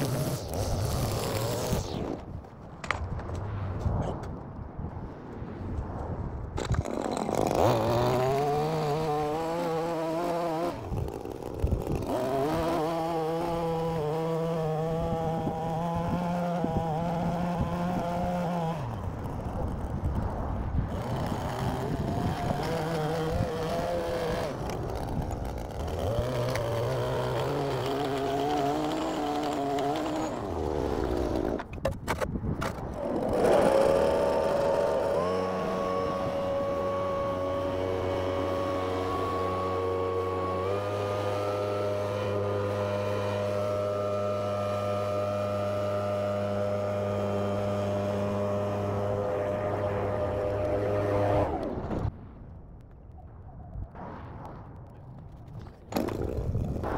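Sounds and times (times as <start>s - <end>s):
leaf blower engine: 0.0s - 2.1s, 6.9s - 20.1s, 20.9s - 31.6s, 32.9s - 51.8s
string trimmer engine revving: 0.0s - 2.1s, 7.0s - 20.0s, 20.9s - 31.7s, 32.9s - 51.8s.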